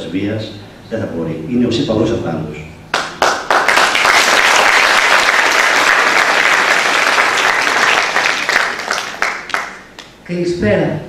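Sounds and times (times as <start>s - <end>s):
audience applauding: 2.9s - 10.1s.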